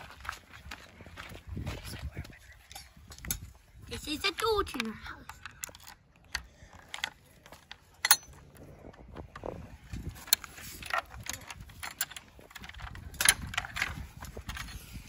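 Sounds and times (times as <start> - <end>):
lock and latch rattling: 8.0 - 8.6, 10.2 - 14.0.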